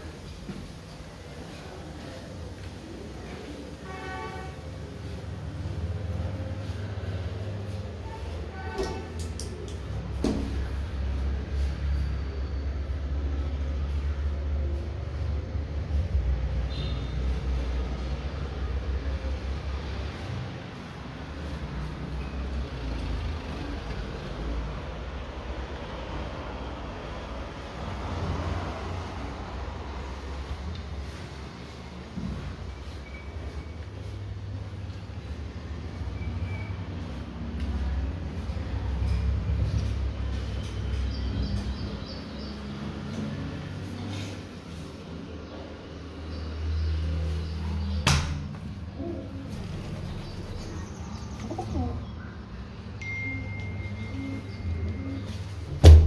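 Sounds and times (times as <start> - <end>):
passing vehicles hiss: 9.8 - 41.5
bird cooing: 49.0 - 50.2, 53.4 - 55.7.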